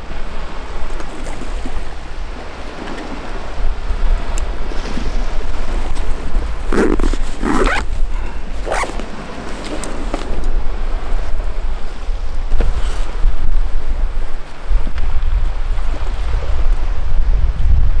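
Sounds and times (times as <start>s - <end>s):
wind buffeting microphone: 0.0s - 18.0s
jacket rustling: 6.5s - 10.3s.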